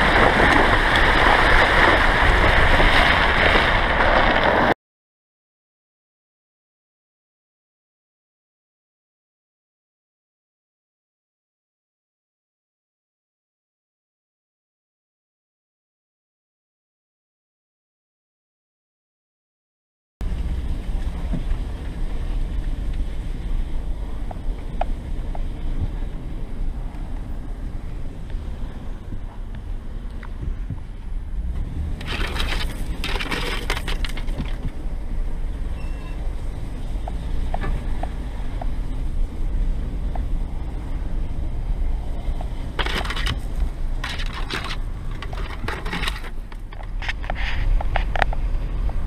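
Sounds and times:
engine and tyre rumble: 0:00.0 - 0:04.8, 0:20.2 - 0:49.0
loud harsh rush under vehicle: 0:00.0 - 0:04.8, 0:20.2 - 0:49.0.

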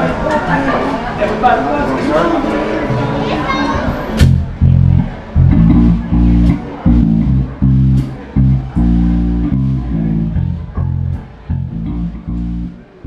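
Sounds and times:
loud bass guitar: 0:04.0 - 0:13.0
live band playing: 0:04.2 - 0:12.8.

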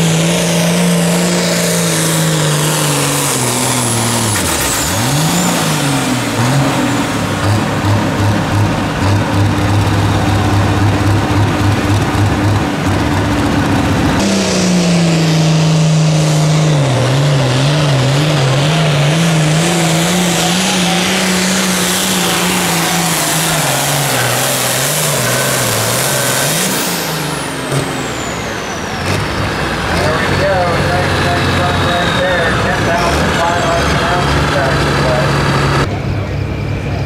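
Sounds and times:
tractor diesel engine at full power: 0:00.0 - 0:37.0
tractor engine steady lower pitch: 0:00.0 - 0:37.0.

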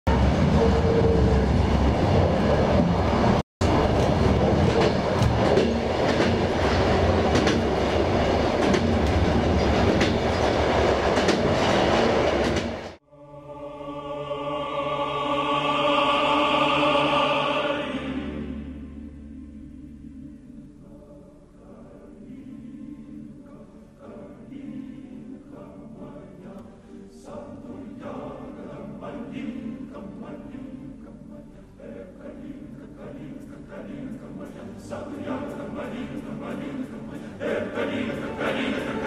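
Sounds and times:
train rumbling: 0:00.1 - 0:13.0
wheels clicking over rail joints: 0:03.8 - 0:12.9
slow choral music: 0:12.8 - 0:39.0.

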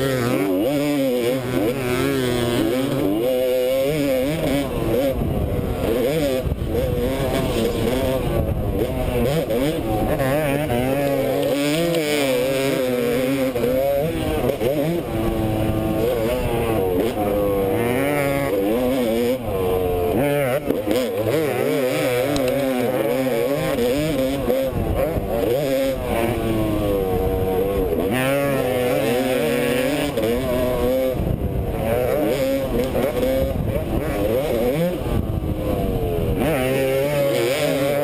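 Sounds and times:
dirt bike engine revving: 0:00.0 - 0:38.0.

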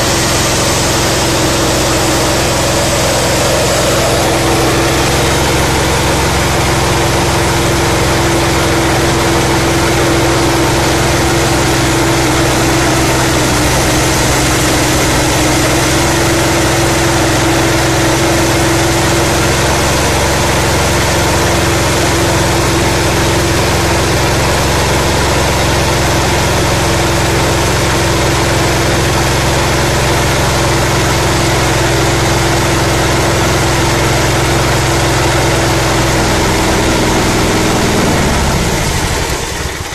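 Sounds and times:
milling rotor hum: 0:00.0 - 0:22.7
engine drone: 0:00.0 - 0:39.9.

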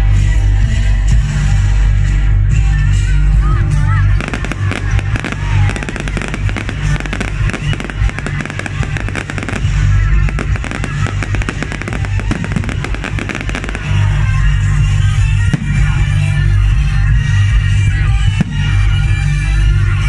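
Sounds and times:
music with steady bass: 0:00.0 - 0:20.0
fireworks cracking and popping: 0:04.1 - 0:16.4.

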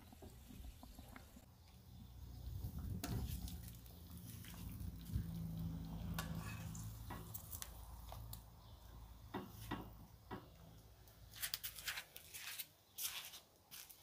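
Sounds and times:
wet squishes of meat: 0:03.1 - 0:08.4.

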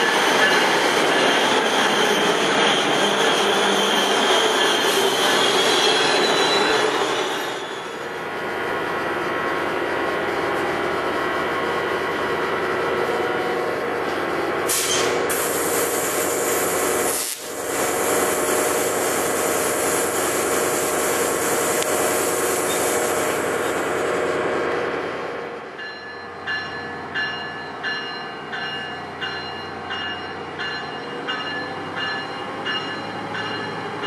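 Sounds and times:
locomotive rolling: 0:00.0 - 0:15.4
short hiss: 0:14.7 - 0:16.1.

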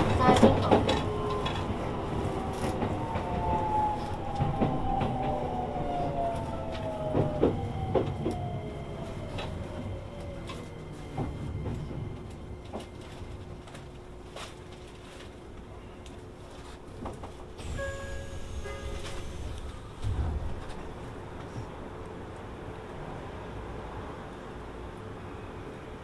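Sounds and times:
wheels clicking over rail joints: 0:00.0 - 0:01.8
train traction motors whining: 0:00.0 - 0:14.1, 0:17.2 - 0:21.6
train running rumble: 0:00.0 - 0:25.0.

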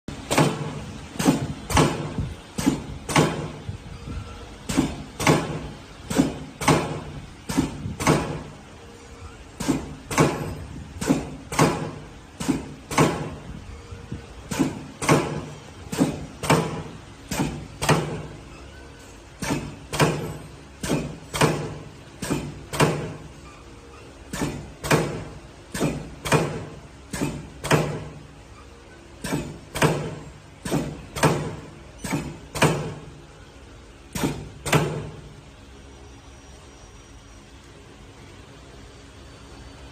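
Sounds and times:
pipe-cutting machine clacking: 0:19.4 - 0:23.2, 0:24.3 - 0:28.1.

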